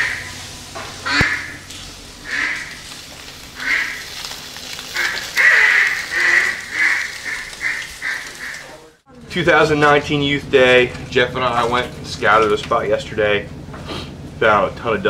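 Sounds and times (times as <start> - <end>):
duck quacking: 0.0 - 0.3, 1.0 - 1.6, 2.2 - 2.8, 3.6 - 4.0, 5.0 - 8.8.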